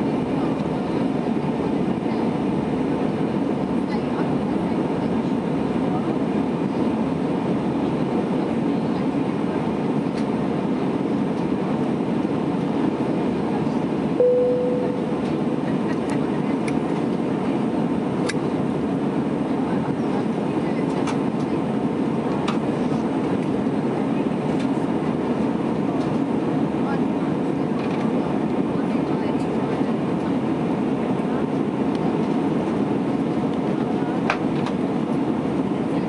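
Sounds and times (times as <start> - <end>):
aircraft cabin engine noise: 0.0 - 36.0
short chime: 14.2 - 15.2.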